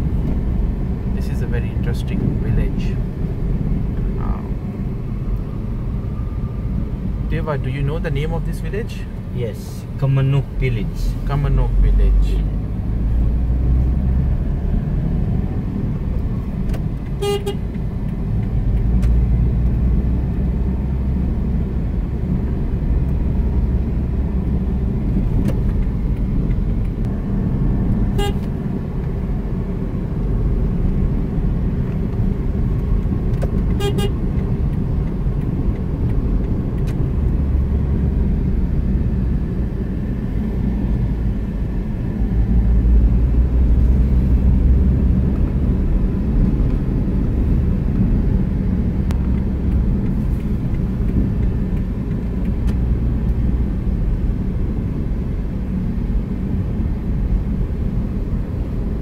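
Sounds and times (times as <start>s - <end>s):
car engine and road rumble: 0.0s - 59.0s
car horn toots: 17.2s - 17.6s, 28.1s - 28.5s, 33.8s - 34.2s.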